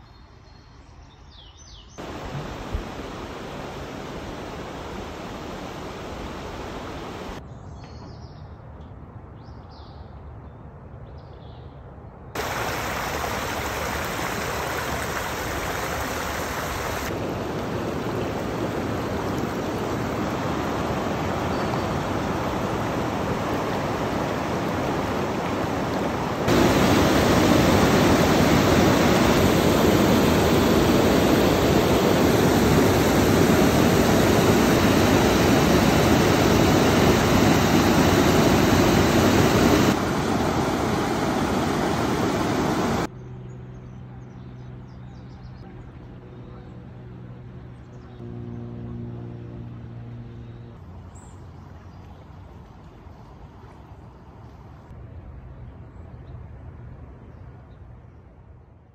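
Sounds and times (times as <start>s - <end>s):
river water rushing over rapids: 2.0s - 7.4s, 12.4s - 43.1s.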